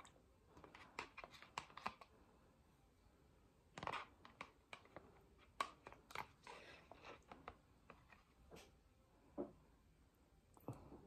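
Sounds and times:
metal spoon scraping plastic container: 0.6s - 2.2s, 3.8s - 8.4s.

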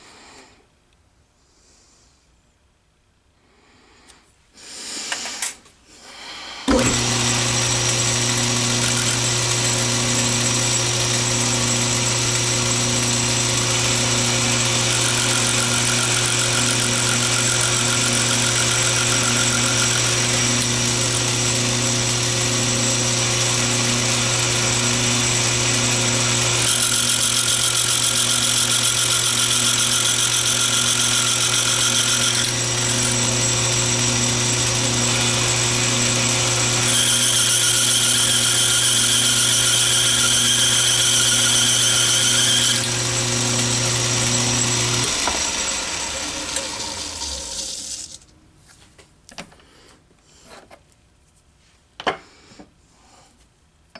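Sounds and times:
lathe motor and belt hum: 6.7s - 48.1s.

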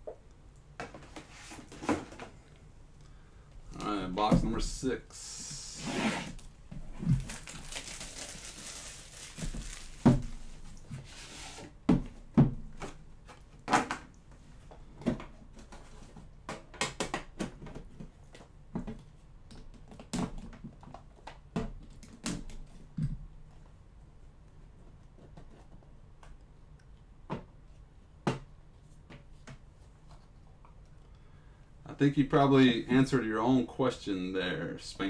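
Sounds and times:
plastic shrink wrap rustling and tearing: 6.4s - 10.7s.

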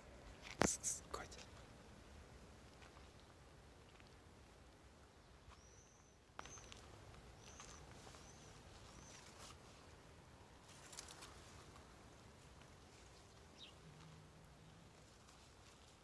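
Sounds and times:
brief rustle: 10.7s - 11.7s.

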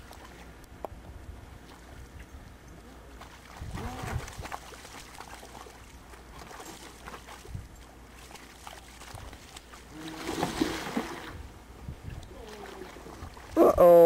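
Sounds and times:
dog splashing in water: 3.2s - 11.3s, 12.3s - 13.6s.

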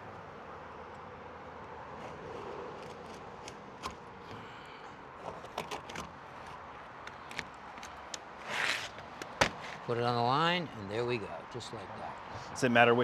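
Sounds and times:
small clicks and scrapes: 1.9s - 4.4s.

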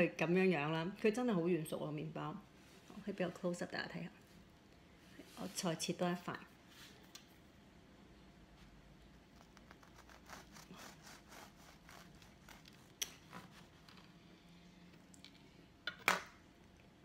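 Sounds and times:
bread knife sawing loaf: 9.7s - 13.8s.

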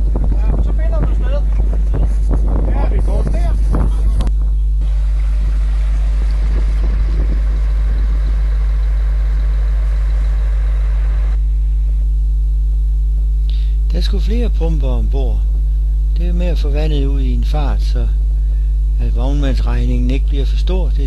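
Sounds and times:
salvage pumps humming: 0.0s - 21.0s
rushing hissing water: 4.8s - 7.0s.

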